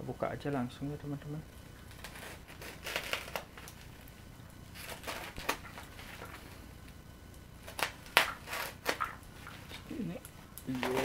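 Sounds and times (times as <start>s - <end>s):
plastic crinkling: 1.8s - 6.6s, 7.6s - 11.0s
utility knife cutting bubble wrap: 1.9s - 3.9s, 4.8s - 6.3s, 7.6s - 9.8s, 10.7s - 11.0s.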